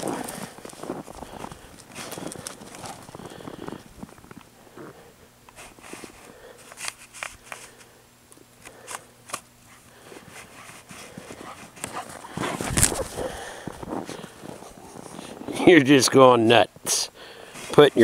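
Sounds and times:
footsteps crunching in snow: 0:00.0 - 0:05.0, 0:09.7 - 0:16.0
dog panting: 0:09.7 - 0:13.5.

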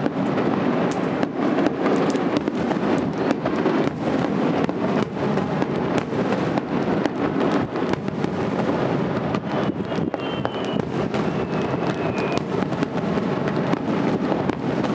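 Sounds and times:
firework shells bursting: 0:00.0 - 0:14.9
faint high whistle: 0:09.4 - 0:12.5.

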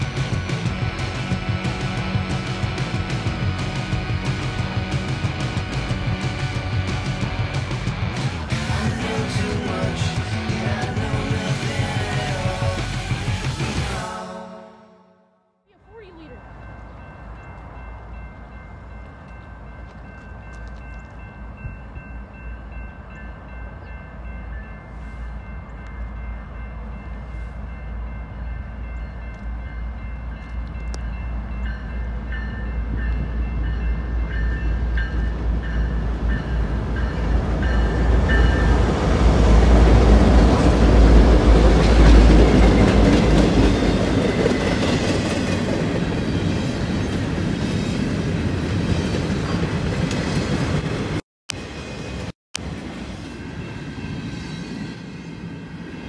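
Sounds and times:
diesel locomotive rumble: 0:00.0 - 0:14.0
faint train horn: 0:14.1 - 0:16.4.

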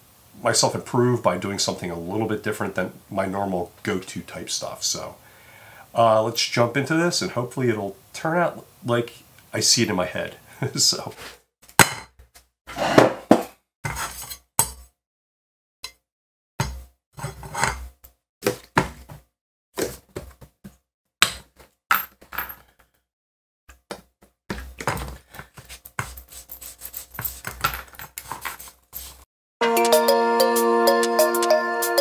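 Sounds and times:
rubbing and scrubbing with clicks: 0:23.7 - 0:29.3.

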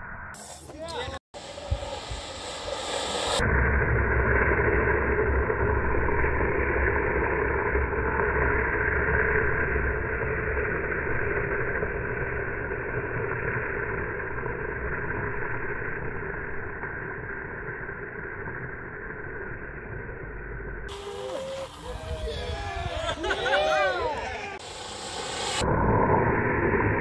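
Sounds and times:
low rumble: 0:00.0 - 0:27.0
skateboard wheels skidding on asphalt: 0:20.9 - 0:25.6.

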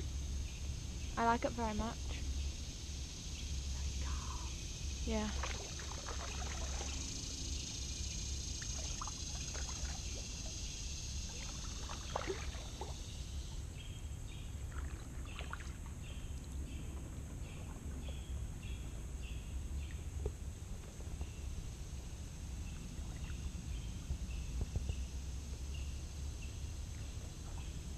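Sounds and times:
high hiss: 0:00.0 - 0:13.6
paddle splashing and dripping water: 0:05.3 - 0:13.7, 0:14.5 - 0:24.9.

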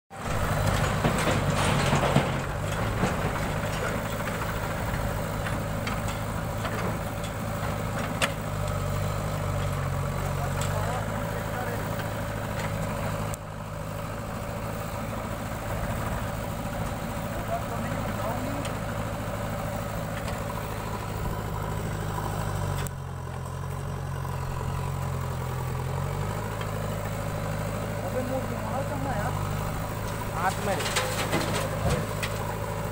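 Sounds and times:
diesel engines running: 0:00.1 - 0:32.9
backhoe bucket digging soil: 0:28.9 - 0:32.9.

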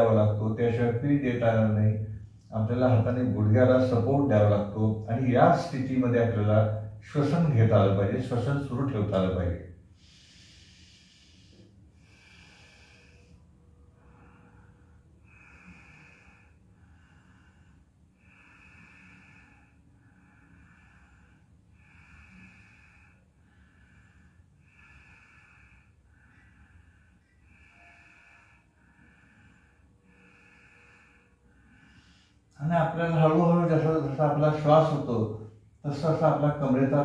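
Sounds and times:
man breathing through nose: 0:09.8 - 0:32.6.

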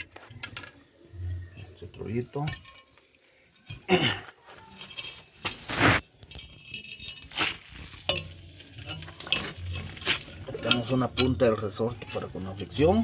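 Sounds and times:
metal scraping: 0:00.0 - 0:13.0
metal springs rattling: 0:06.3 - 0:13.0.

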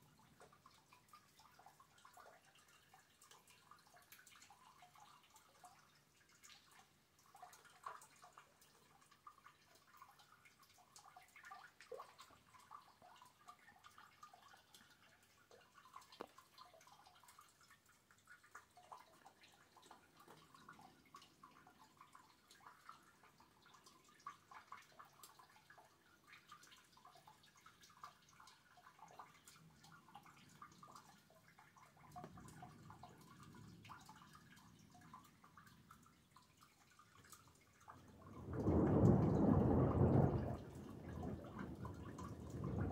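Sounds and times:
rainwater dripping: 0:00.0 - 0:42.9.

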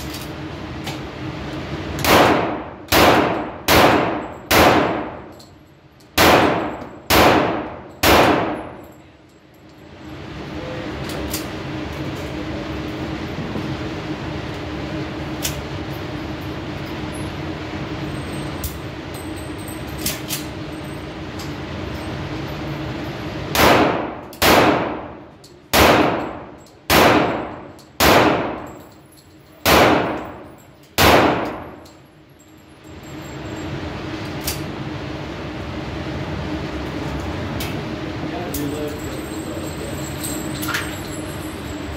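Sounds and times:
steady background hum: 0:00.0 - 0:41.9
pistol shots echoing: 0:02.0 - 0:05.2, 0:06.2 - 0:08.8, 0:23.6 - 0:28.7, 0:29.6 - 0:30.3, 0:31.0 - 0:31.7.

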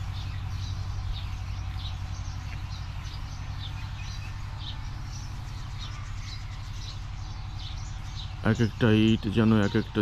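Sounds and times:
small birds chirping: 0:00.0 - 0:10.0
steady low hum: 0:00.0 - 0:10.0.

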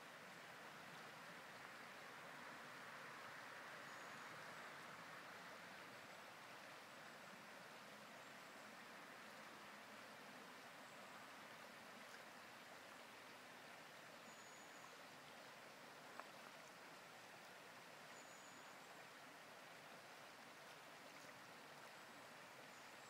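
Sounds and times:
river running over stones: 0:00.0 - 0:23.0
faint click: 0:16.1 - 0:16.8.

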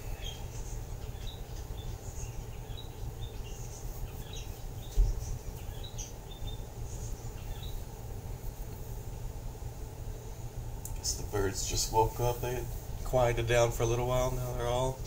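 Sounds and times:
birds chirping: 0:00.0 - 0:15.0
low steady hum: 0:00.0 - 0:15.0.

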